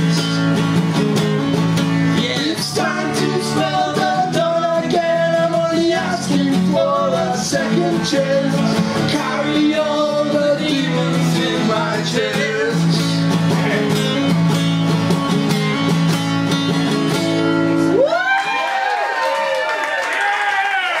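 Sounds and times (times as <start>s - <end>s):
man singing lead vocals: 0.0s - 0.6s, 2.1s - 14.4s
strummed acoustic guitars: 0.0s - 18.0s
audience cheering and whooping: 17.9s - 21.0s.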